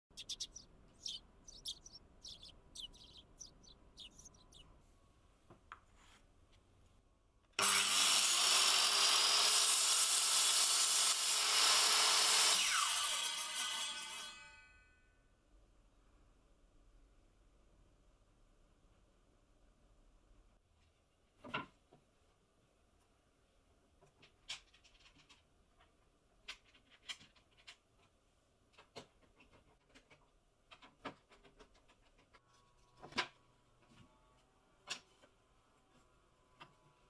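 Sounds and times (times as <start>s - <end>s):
circular saw cutting wood: 7.6s - 14.1s.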